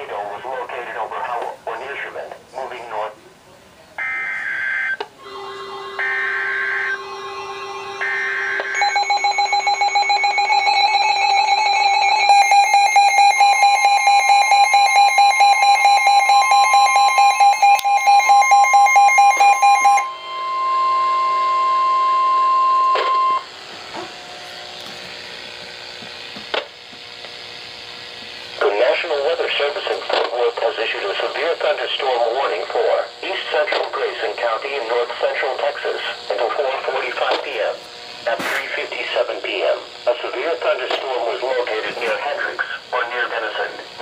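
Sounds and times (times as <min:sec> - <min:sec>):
steady alarm tone: 0:04.0 - 0:29.6
rapid pulsing electronic beep: 0:06.0 - 0:23.5.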